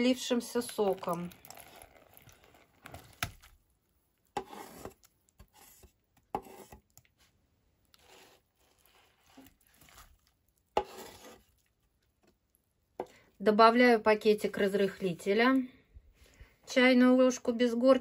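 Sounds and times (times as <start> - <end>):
scraping against bowl: 4.4 - 6.8, 10.8 - 11.5.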